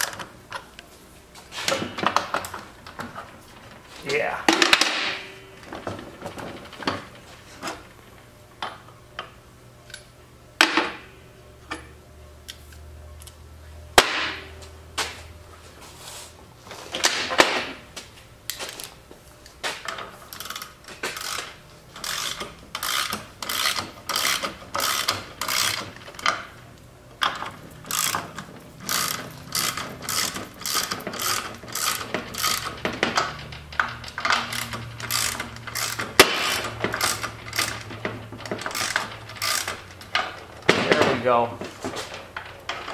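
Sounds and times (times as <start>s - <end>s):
ratchet wrench clicking: 20.3s - 26.4s, 27.3s - 40.3s.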